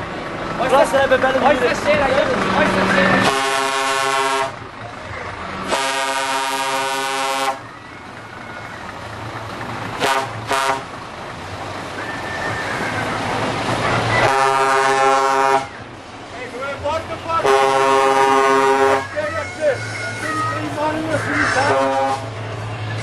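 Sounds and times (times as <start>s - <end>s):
truck air horn blasts: 3.2s - 4.6s, 5.6s - 7.6s, 10.0s - 10.9s, 14.2s - 15.8s, 17.4s - 19.2s, 21.4s - 22.3s.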